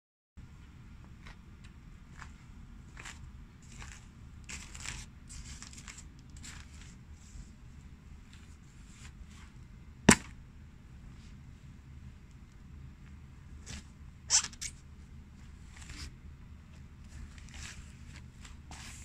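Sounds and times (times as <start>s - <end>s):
plastic sheeting rustling: 3.0s - 7.0s, 17.0s - 19.0s.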